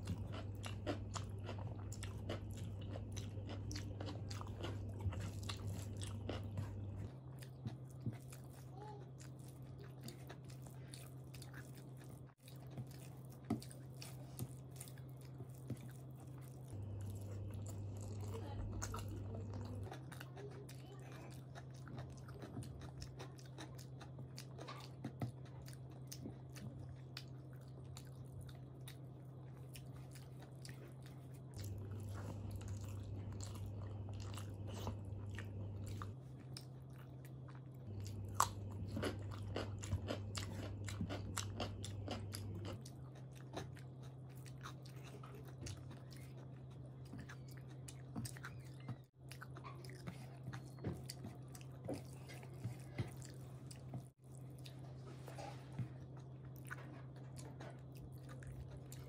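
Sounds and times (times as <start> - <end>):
person chewing food: 0.0 - 59.0
low hum: 15.5 - 19.9.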